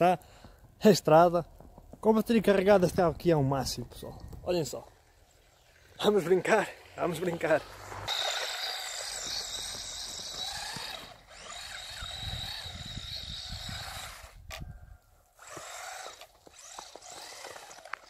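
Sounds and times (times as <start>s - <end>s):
electric toy car motor whining: 7.7s - 14.7s, 15.3s - 18.0s.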